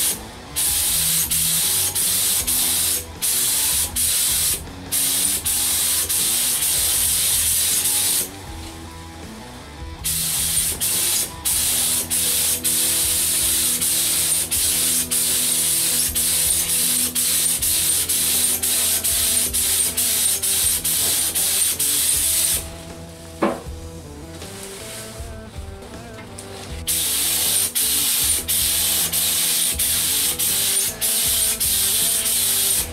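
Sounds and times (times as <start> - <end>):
paint spray gun hissing: 0.0 - 8.7, 10.0 - 23.6, 24.4 - 25.3, 26.4 - 32.9
sharp knock: 23.4 - 23.9.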